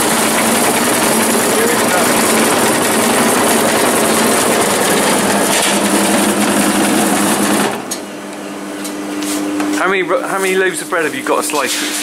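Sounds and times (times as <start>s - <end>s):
bread slicer buzzing: 0.0s - 8.1s.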